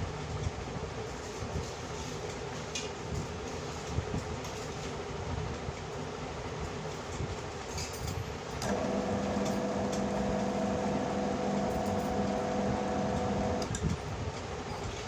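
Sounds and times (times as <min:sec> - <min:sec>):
pump motor humming: 0:08.6 - 0:13.8.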